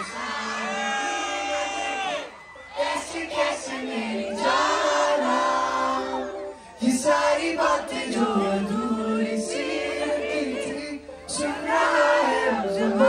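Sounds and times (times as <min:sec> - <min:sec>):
audience singing along: 0:00.0 - 0:13.0
man singing through pa system: 0:02.8 - 0:13.0.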